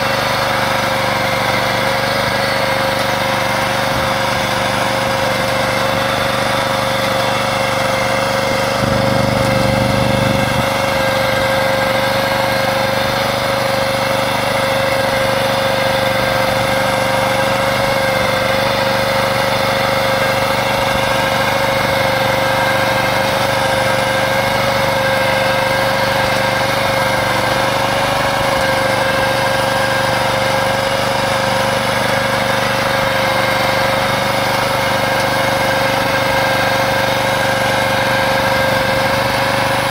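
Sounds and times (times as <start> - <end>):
tractor engine running: 0.0 - 39.9.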